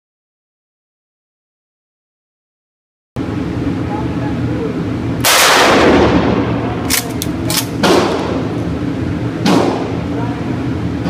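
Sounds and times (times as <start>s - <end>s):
steady low hum: 3.2s - 11.0s
shotgun blast: 5.2s - 8.4s.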